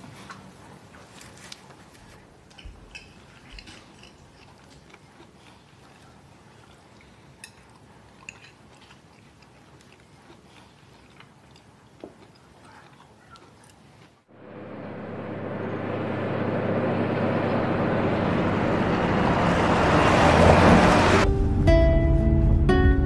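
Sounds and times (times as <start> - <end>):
soft chewing: 0.0 - 14.3
cutlery clicking on plates: 2.5 - 4.2, 7.4 - 8.6.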